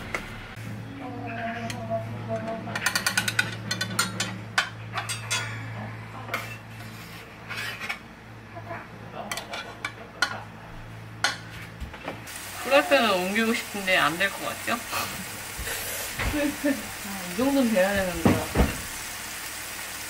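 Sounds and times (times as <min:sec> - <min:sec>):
spatula scraping a frying pan: 0:06.3 - 0:08.1.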